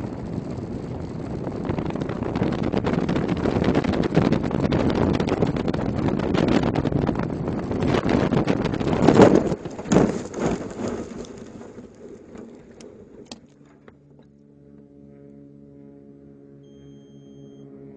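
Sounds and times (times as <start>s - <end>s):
loud rush of wind: 0.0s - 10.7s
vegetation crackling against airframe: 0.3s - 14.1s.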